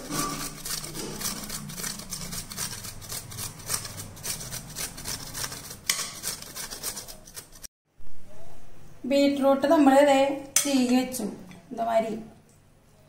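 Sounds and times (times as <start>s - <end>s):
beetroot rasping on a metal grater: 0.0s - 7.7s.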